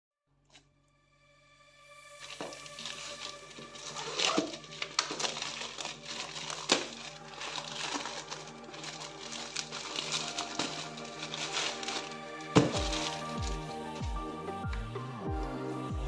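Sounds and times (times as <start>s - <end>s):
soft background music: 0.5s - 16.0s
knife slitting plastic mailer: 2.2s - 13.8s
plastic crinkling and ripping: 2.2s - 14.3s.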